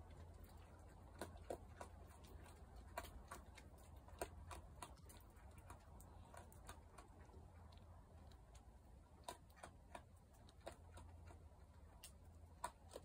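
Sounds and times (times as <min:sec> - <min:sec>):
animal chewing on gravel: 0:00.0 - 0:13.0.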